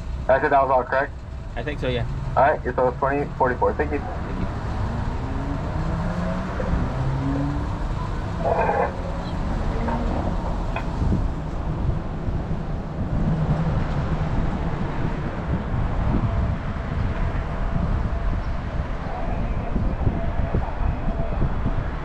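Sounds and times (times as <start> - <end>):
car engine idling: 0.0 - 13.9
wind noise on microphone: 0.0 - 22.0.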